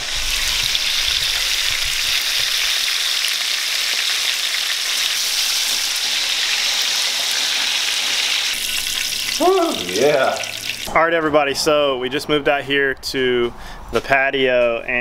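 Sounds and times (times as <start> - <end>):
fish sizzling in oil: 0.0 - 10.9.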